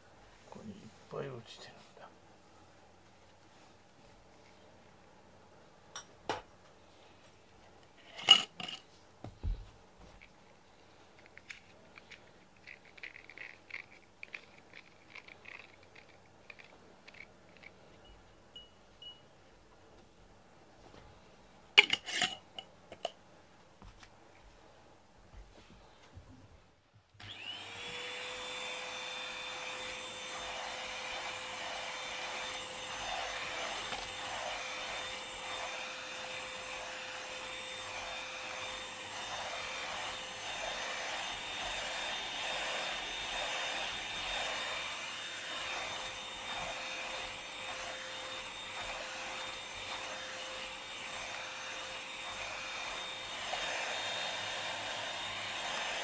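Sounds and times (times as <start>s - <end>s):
handheld vacuum cleaner running: 27.2s - 56.0s.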